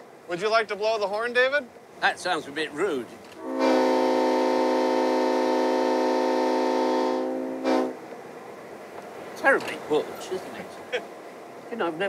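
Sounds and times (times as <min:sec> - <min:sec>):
locomotive air horn blasts: 0:03.4 - 0:08.1.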